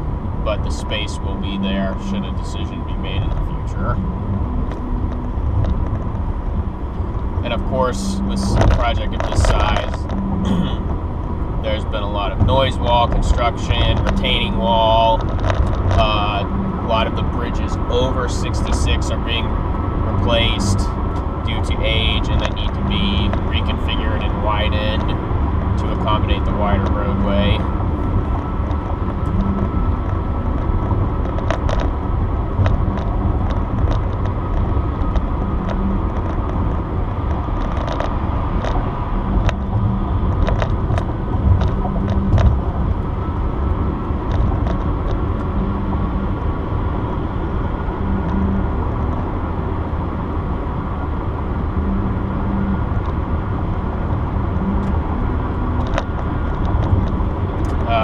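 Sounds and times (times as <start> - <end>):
car road and tyre noise: 0.0 - 58.0
faint steady whine: 0.0 - 58.0
light ticks and rattles: 4.6 - 46.2, 55.8 - 58.0.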